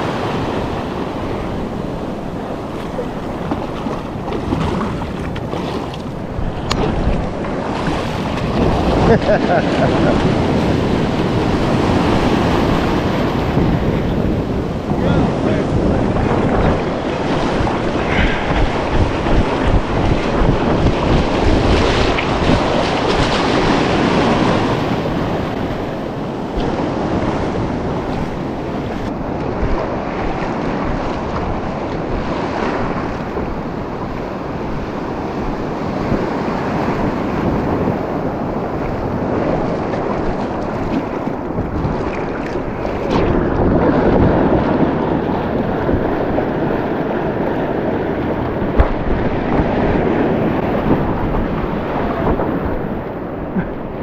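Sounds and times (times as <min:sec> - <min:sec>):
ocean surf breaking: 0:00.0 - 0:54.0
wind buffeting microphone: 0:00.0 - 0:54.0.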